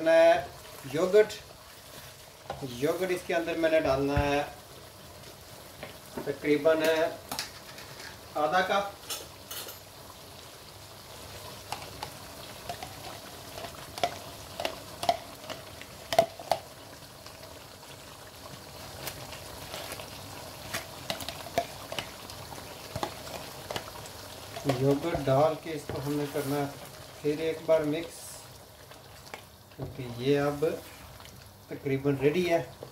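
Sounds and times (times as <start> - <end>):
sauce sizzling in a wok: 0.0 - 32.9
spoon clicking and tapping pan: 14.0 - 16.6.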